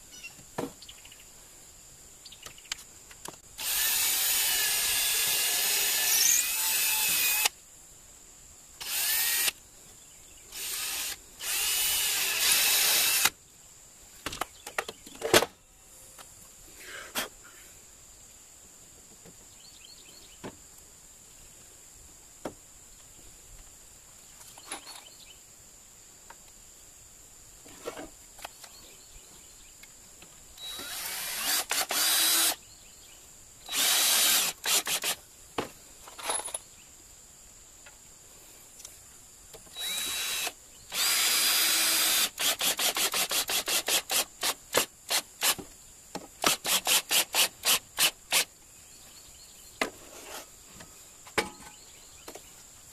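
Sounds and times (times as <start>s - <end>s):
cordless drill driving screw: 3.6s - 7.5s, 8.8s - 9.6s, 10.6s - 13.3s, 30.6s - 32.6s, 33.7s - 35.2s, 39.7s - 45.6s.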